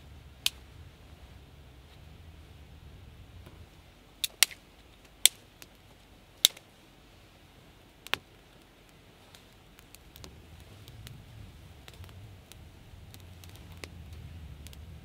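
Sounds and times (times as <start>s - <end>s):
sharp clicks or snaps: 4.2s - 5.8s, 6.4s - 6.7s, 8.0s - 11.2s.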